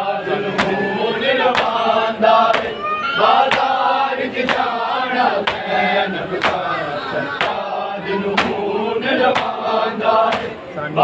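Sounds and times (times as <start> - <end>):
crowd of men chanting: 0.0 - 11.0
palms slapping bare chests: 3.5 - 3.8, 4.4 - 4.7, 5.4 - 6.7, 10.2 - 10.6.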